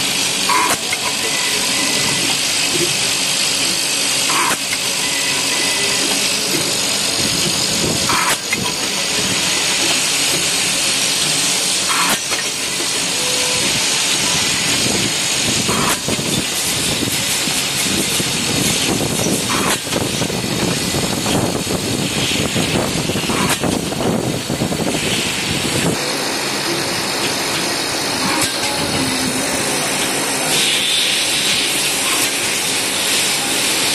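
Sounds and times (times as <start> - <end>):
compressed air hiss: 24.8 - 25.9, 30.4 - 32.4.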